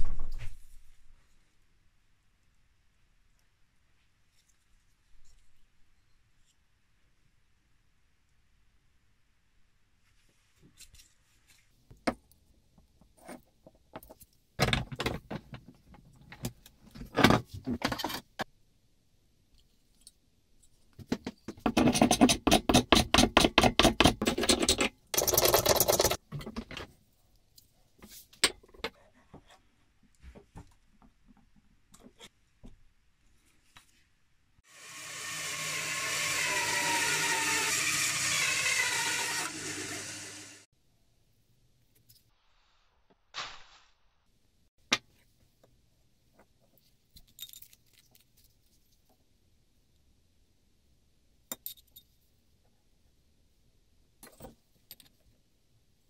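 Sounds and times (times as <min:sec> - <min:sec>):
bandsaw cutting wood: 0:34.7 - 0:40.7.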